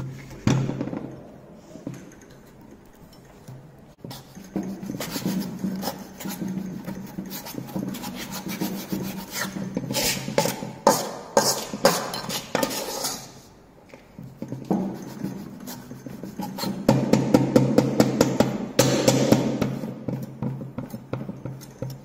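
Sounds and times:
trowel scraping cement: 4.1s - 13.4s.

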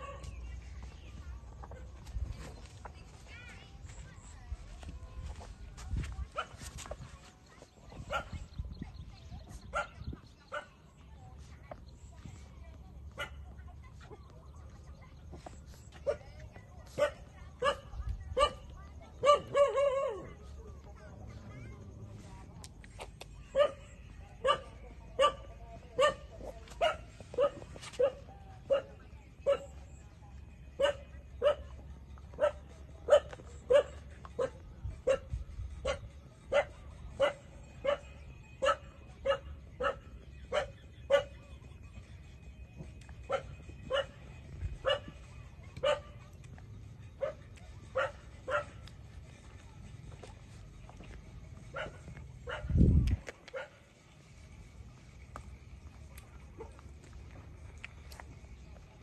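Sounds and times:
dog barking: 0.0s - 0.3s, 6.3s - 6.6s, 8.0s - 8.5s, 9.6s - 10.8s, 13.1s - 13.5s, 16.9s - 20.4s, 23.5s - 29.8s, 30.8s - 31.7s, 32.3s - 41.4s, 43.3s - 44.2s, 44.8s - 45.2s, 45.8s - 46.2s, 47.2s - 48.9s, 51.7s - 52.8s, 53.5s - 53.8s.

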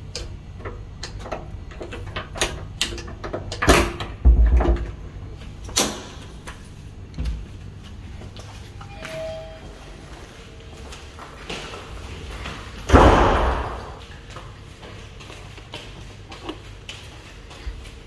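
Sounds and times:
wooden door thudding: 12.9s - 14.0s.

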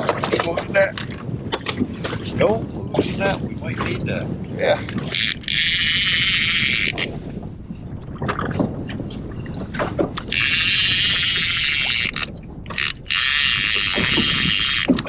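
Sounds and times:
reel and rod clicks and knocks: 0.0s - 2.4s, 4.8s - 7.2s, 8.1s - 15.0s
fishing reel drag buzzing: 5.1s - 7.1s, 10.2s - 15.0s.

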